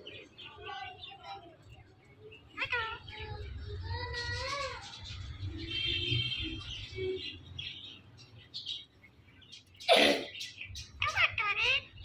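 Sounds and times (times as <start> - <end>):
parakeets chirping: 0.0 - 12.0.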